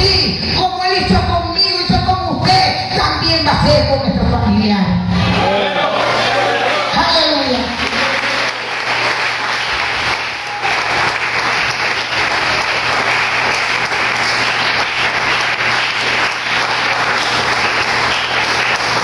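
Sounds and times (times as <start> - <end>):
crowd applauding: 5.3 - 19.0.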